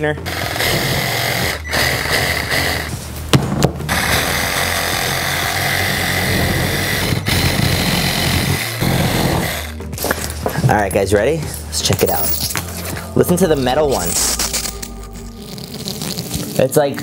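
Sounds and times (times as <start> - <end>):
reciprocating saw cutting dry ice: 0.0 - 3.1, 3.9 - 10.3.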